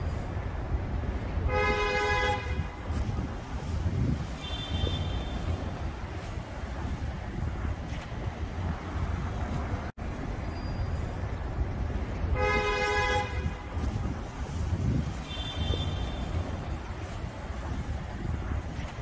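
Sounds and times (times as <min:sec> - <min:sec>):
city traffic rumble: 0:00.0 - 0:19.0
wind on microphone: 0:00.0 - 0:19.0
car horn honking: 0:01.5 - 0:02.8, 0:04.4 - 0:05.5, 0:12.3 - 0:13.6, 0:15.2 - 0:16.4.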